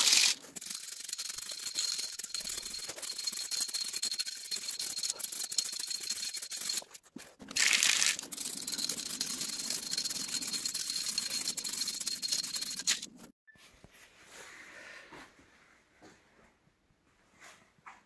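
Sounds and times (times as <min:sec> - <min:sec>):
spray can mixing ball rattle: 0:00.0 - 0:13.1.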